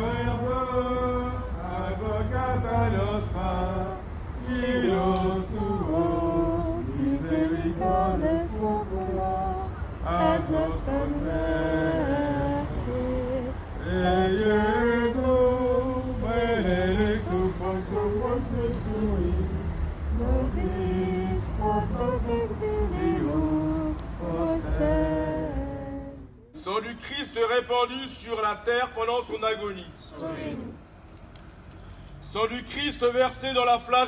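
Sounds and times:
group singing a hymn: 0.0 - 26.4, 30.1 - 30.8
steady low rumble: 0.0 - 26.8.

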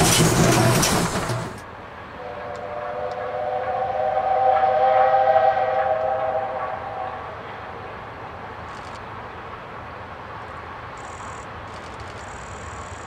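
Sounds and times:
steam locomotive whistle: 2.2 - 8.0.

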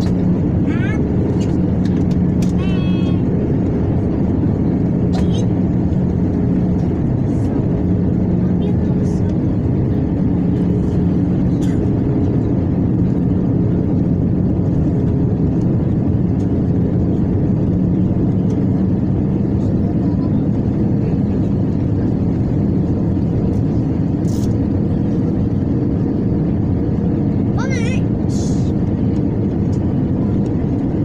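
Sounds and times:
constant low hum: 0.0 - 31.0
jet engines and airflow drone: 0.0 - 31.0.

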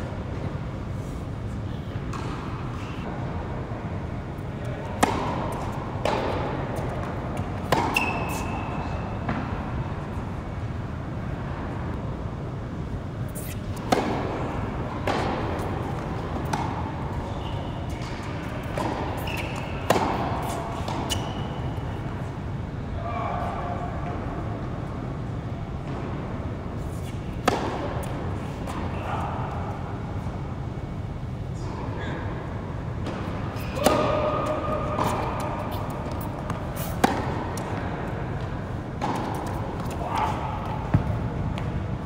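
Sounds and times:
tennis ball hits and bounces: 2.0 - 2.6, 4.9 - 9.6, 13.4 - 17.2, 17.9 - 21.6, 26.9 - 28.9, 33.0 - 41.8
shoe squeaks: 7.8 - 9.2, 13.3 - 13.8, 19.1 - 21.9.

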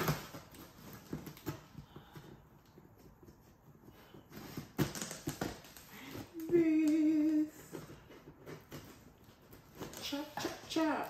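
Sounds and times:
woman humming: 6.3 - 7.7.

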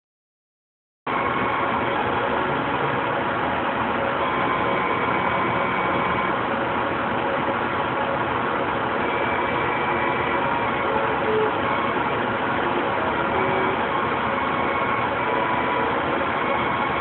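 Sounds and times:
laser cutter whooshing hum: 1.1 - 17.0
faint high whine: 4.1 - 6.4, 9.0 - 17.0.

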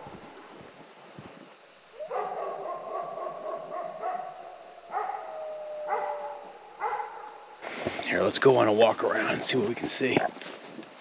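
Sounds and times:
dog howling: 2.0 - 7.2
dog barking: 2.0 - 7.4.

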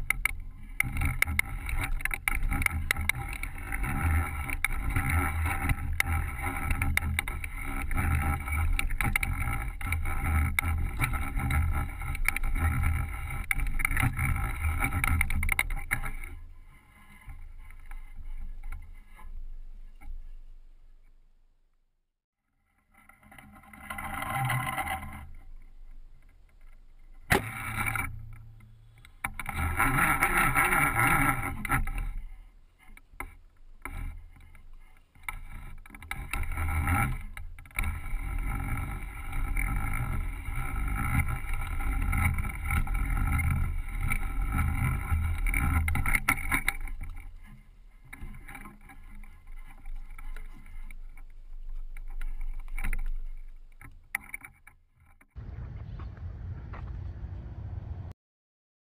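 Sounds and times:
fishing line handling noise: 23.3 - 55.2.

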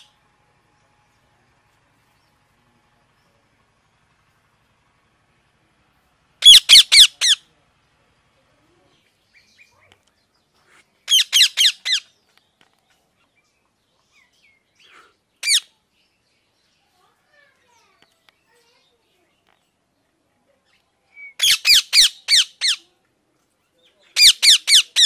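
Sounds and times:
parakeet screeching: 6.4 - 7.4, 11.1 - 12.0, 15.4 - 15.7, 21.4 - 22.8, 24.2 - 25.0.

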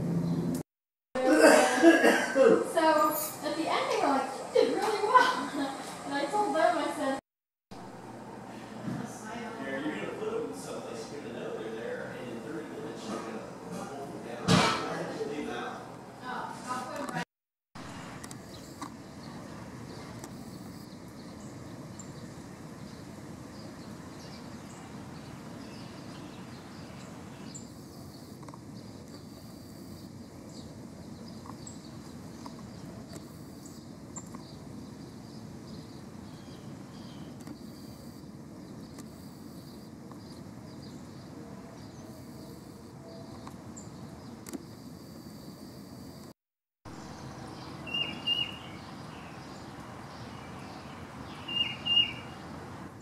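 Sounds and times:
faint bird chirps: 47.4 - 52.5.

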